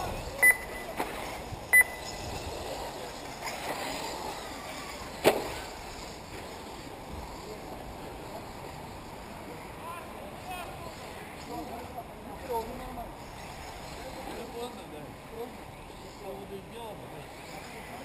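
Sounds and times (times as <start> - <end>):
steady background noise: 0.0 - 18.0
high electronic beep: 0.4 - 0.9, 1.7 - 2.2.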